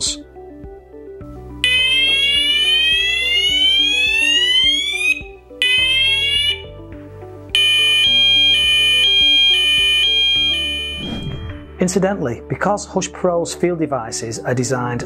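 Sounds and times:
soft background music: 0:00.0 - 0:15.0
fire alarm rising sweep: 0:01.6 - 0:06.7, 0:07.6 - 0:11.7
fire alarm steady tone: 0:01.6 - 0:06.7, 0:07.5 - 0:11.2.

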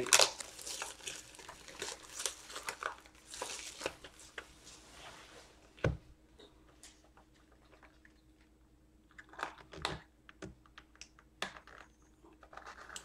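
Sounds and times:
wrappers crinkling: 0:00.0 - 0:04.8.

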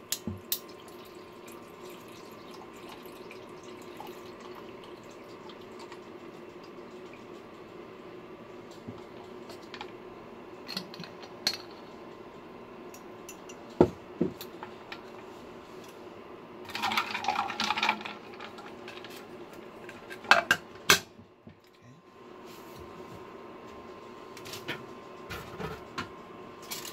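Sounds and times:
induction burner hum: 0:00.0 - 0:26.9.

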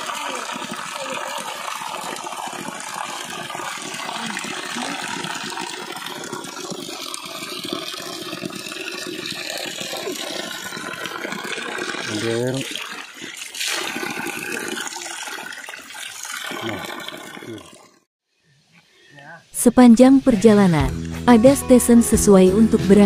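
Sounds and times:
spring water running and splashing: 0:00.0 - 0:18.1.

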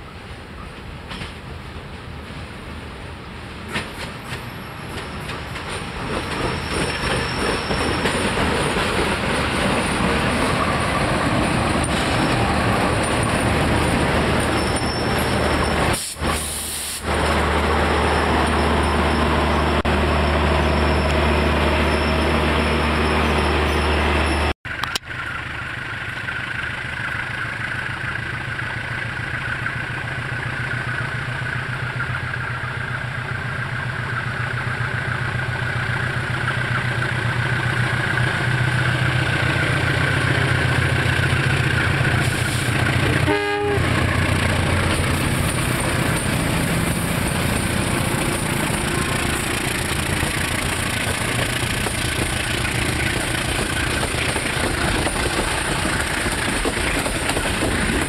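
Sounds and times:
diesel locomotive engine drone: 0:00.0 - 0:58.0
train rolling on rails: 0:00.0 - 0:58.0
train horn note: 0:43.2 - 0:44.0.

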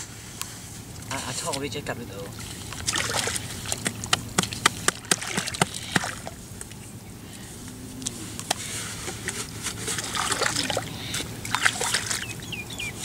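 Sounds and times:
mud and water sloshing: 0:00.0 - 0:07.0, 0:07.6 - 0:13.0
mud squelching: 0:00.0 - 0:13.0
sharp wet slaps: 0:02.8 - 0:06.7.

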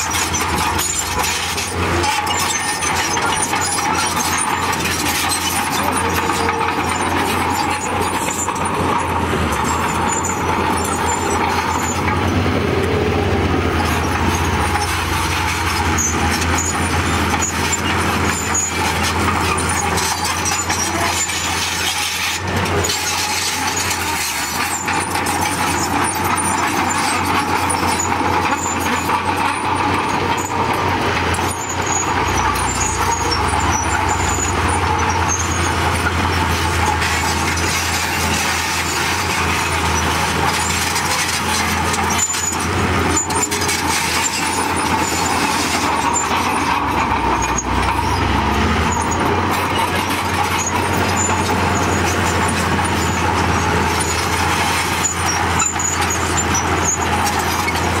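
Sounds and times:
bulldozer diesel engine running: 0:00.0 - 0:58.0
metal clanks: 0:13.7 - 0:58.0.

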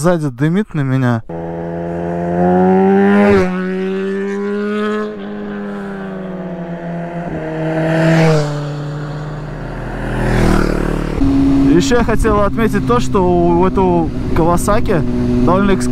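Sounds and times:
motorcycle engine running: 0:01.3 - 0:15.9.

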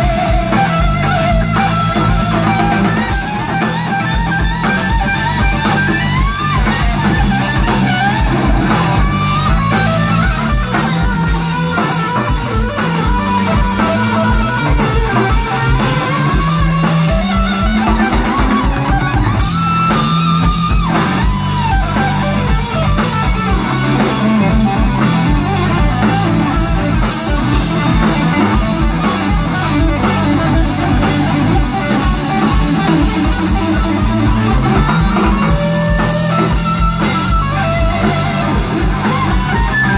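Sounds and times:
drum kit steady beat: 0:00.0 - 0:39.9
electric bass: 0:00.0 - 0:39.9
electric guitar lead: 0:00.0 - 0:39.9.

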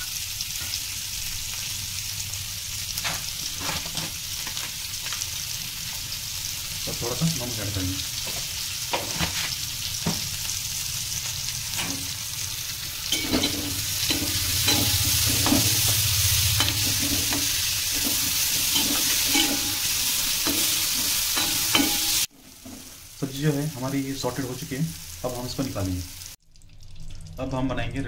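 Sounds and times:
vegetables sizzling in a wok: 0:00.0 - 0:26.4
metal spatula scraping pan: 0:13.1 - 0:22.9.

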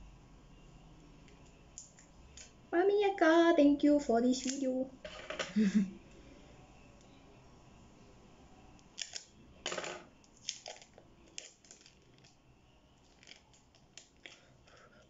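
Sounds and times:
plastic wrapper crinkling: 0:08.9 - 0:09.3, 0:10.3 - 0:12.4, 0:13.0 - 0:14.4.

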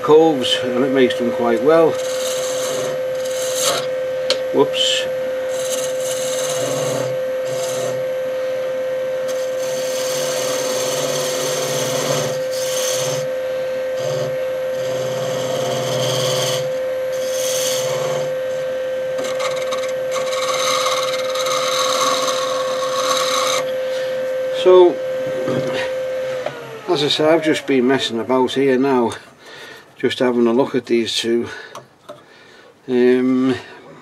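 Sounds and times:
wood lathe motor whine: 0:00.0 - 0:29.2
tool scraping spinning wood: 0:00.0 - 0:29.3.

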